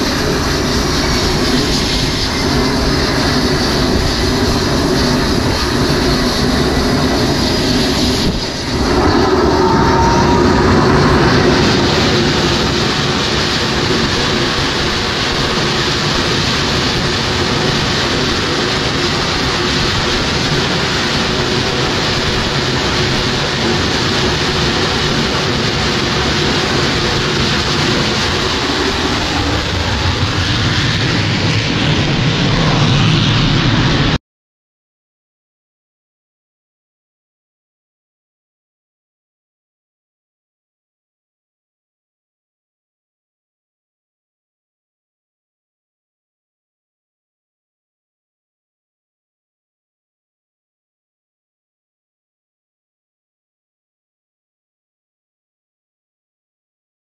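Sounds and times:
jet engines roaring: 0.0 - 34.2.

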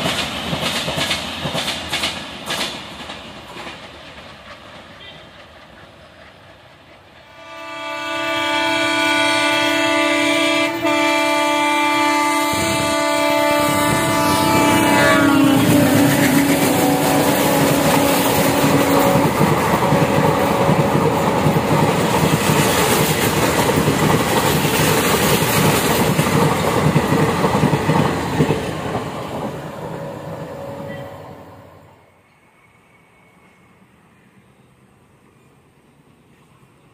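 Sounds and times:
diesel locomotive passing: 0.0 - 36.9
train horn: 5.0 - 5.3, 7.2 - 21.6, 30.0 - 33.6.

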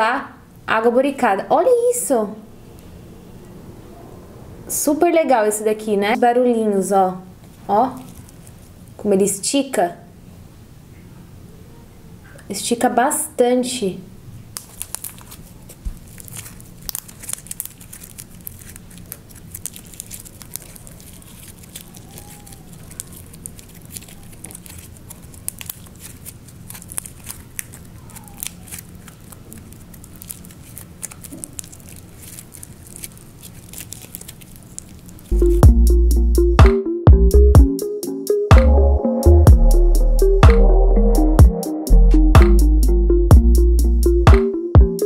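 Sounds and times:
slime squeezed by hand: 14.6 - 35.6
music with a beat: 35.4 - 45.0.

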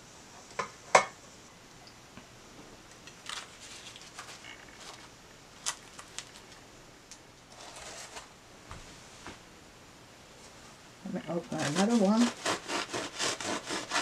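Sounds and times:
crisp crust crackling: 3.0 - 8.3, 11.4 - 13.8.

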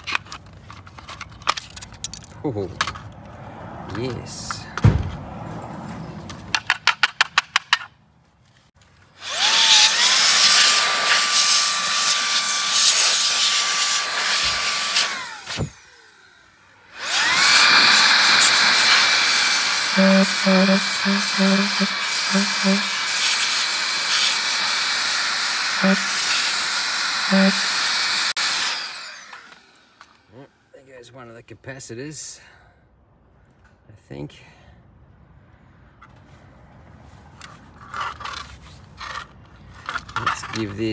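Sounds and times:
electric tool motor whine: 9.2 - 30.3
short low buzzes: 19.9 - 22.9.

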